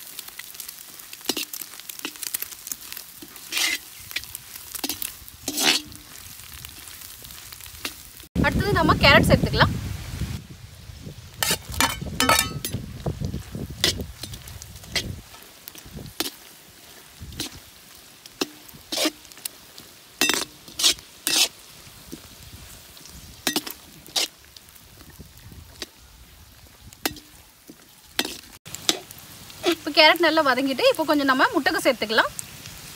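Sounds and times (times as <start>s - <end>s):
faint sizzle: 0.0s - 32.9s
metal spatula scraping a wok: 0.4s - 8.0s, 11.4s - 24.4s, 27.0s - 29.8s.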